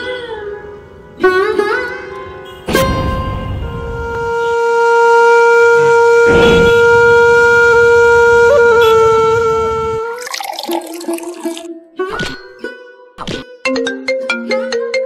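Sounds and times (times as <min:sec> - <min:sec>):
conch shell blown: 0:03.1 - 0:10.2.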